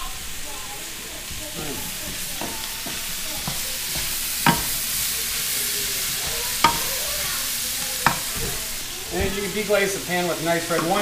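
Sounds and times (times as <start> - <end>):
sprouts sizzling in a skillet: 0.0 - 11.0
spatula knocking against pan: 1.8 - 9.4, 10.7 - 11.0.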